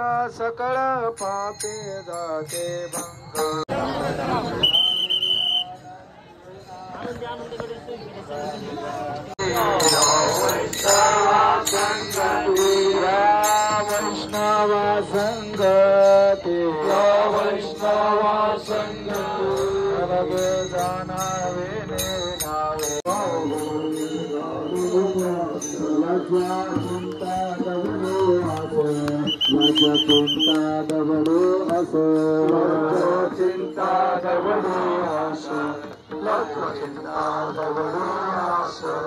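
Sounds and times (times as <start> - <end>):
men chanting over loudspeaker: 6.6 - 39.0
hand cymbals clashing: 9.4 - 17.1.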